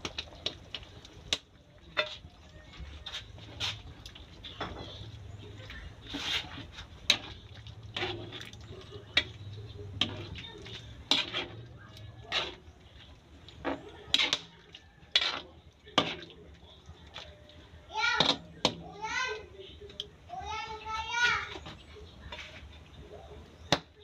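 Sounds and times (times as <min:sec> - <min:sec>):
sauce sloshing: 0:00.0 - 0:20.3
spatula scraping a wok: 0:01.9 - 0:16.6, 0:20.9 - 0:23.8.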